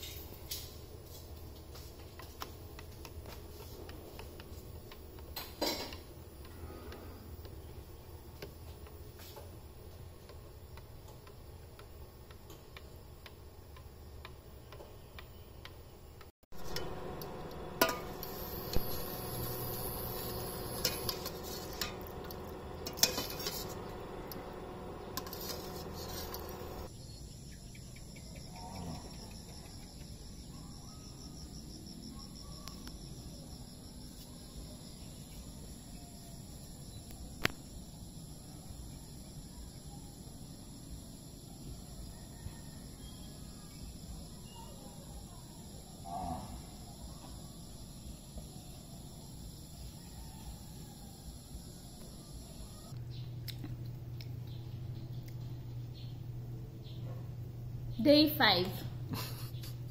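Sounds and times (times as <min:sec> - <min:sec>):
crickets chirring: 0:00.0 - 0:59.9
metal utensil scraping saucepan: 0:16.6 - 0:26.9.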